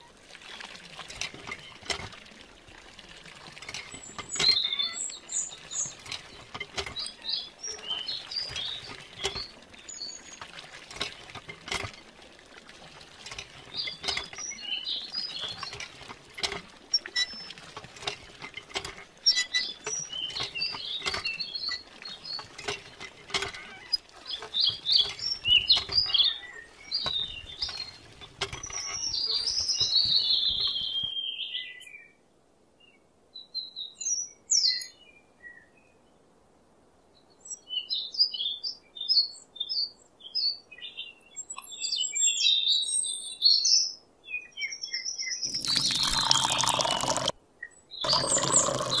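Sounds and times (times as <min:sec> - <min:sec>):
water trickling: 0:00.0 - 0:31.1, 0:45.4 - 0:47.4, 0:48.0 - 0:49.0
birds chirping: 0:03.9 - 0:10.5, 0:13.5 - 0:15.9, 0:19.2 - 0:32.1, 0:44.6 - 0:47.3, 0:47.9 - 0:49.0.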